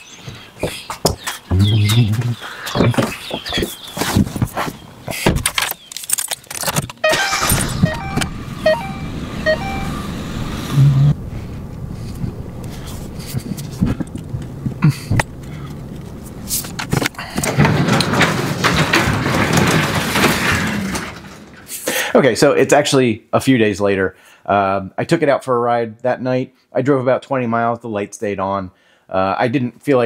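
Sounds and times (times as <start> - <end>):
car door and keys clattering: 5.4 - 9.8
car engine cranking and starting: 6.5 - 21.8
short electronic chime beeps: 7.0 - 10.0
car engine idling with knocks: 11.2 - 21.7.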